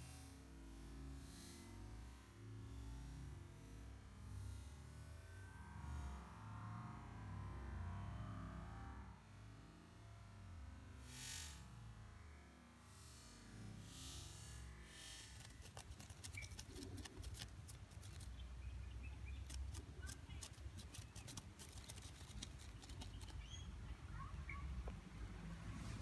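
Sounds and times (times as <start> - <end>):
short high bird chirps: 16.0 - 17.1, 22.7 - 24.7.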